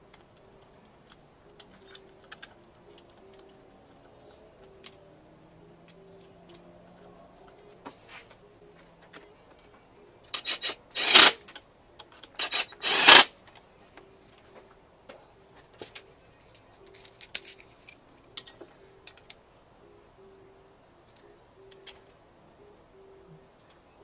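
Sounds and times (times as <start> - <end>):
metal hand tools clicking: 10.3 - 11.5, 12.2 - 13.3
socket ratchet rasping: 10.4 - 11.4, 12.3 - 13.3.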